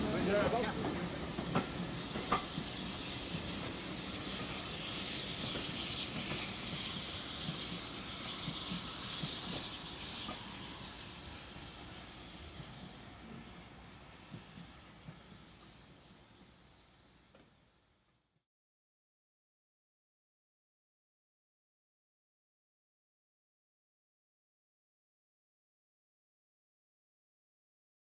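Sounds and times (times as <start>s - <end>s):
coach wheels clattering: 0.0s - 11.0s
steam locomotive hissing: 0.0s - 18.4s.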